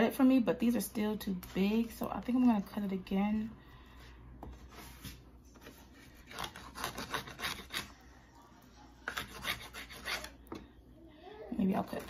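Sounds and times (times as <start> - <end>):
knife sawing through fish: 6.2 - 8.0, 9.1 - 10.4.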